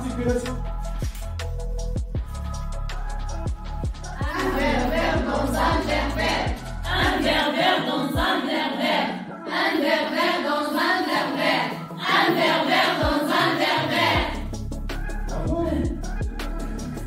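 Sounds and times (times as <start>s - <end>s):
chorus of young voices singing: 4.1s - 14.4s.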